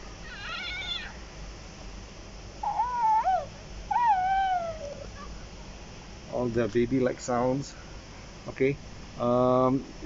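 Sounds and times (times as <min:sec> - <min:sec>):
toy playing baby-like cooing: 0:02.6 - 0:05.3.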